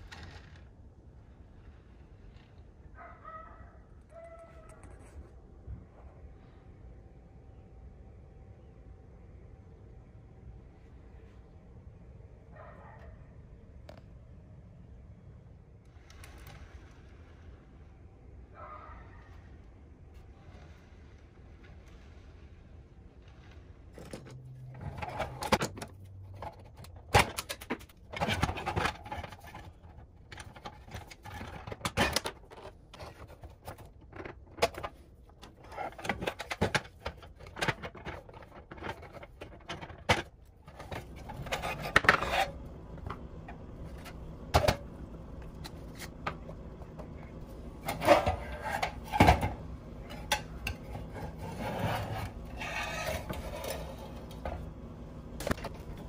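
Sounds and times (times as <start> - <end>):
metal parts scraping and clicking: 23.2 - 44.8, 47.8 - 54.6.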